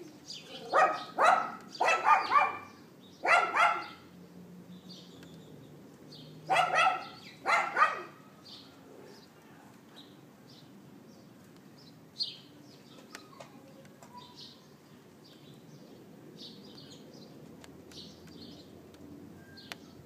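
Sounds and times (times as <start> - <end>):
dog yapping: 0.6 - 4.0, 6.5 - 8.2.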